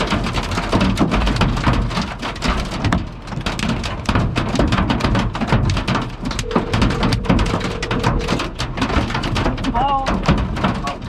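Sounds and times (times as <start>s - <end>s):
hail clattering on car: 0.0s - 11.0s
steady tone: 6.4s - 8.6s.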